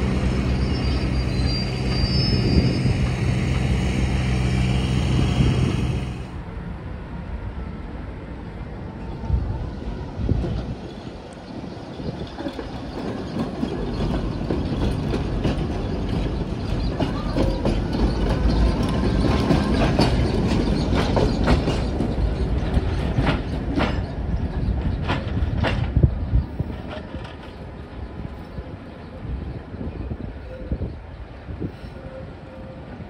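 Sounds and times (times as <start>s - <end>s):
tram running on rails: 0.0s - 33.0s
wheels clacking over rail joints: 10.4s - 27.8s.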